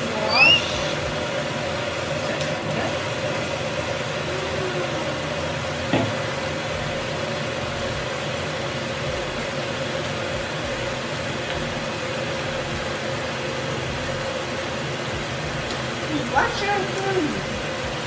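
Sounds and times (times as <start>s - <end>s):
tap running into sink: 5.9s - 6.2s.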